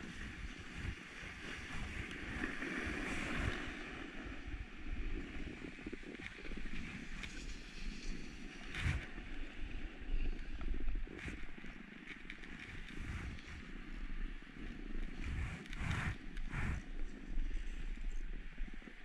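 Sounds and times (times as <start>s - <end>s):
wind rumble on microphone: 0.0s - 19.0s
skis scraping on packed snow: 12.4s - 18.2s.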